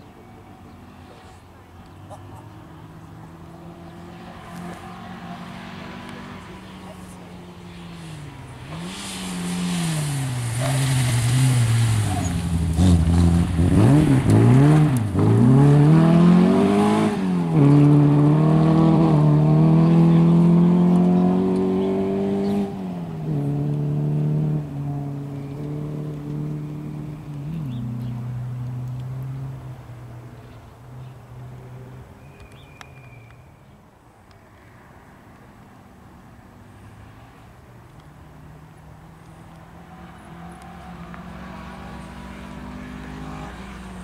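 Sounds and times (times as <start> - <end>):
rally car engine revving: 2.1 - 29.2.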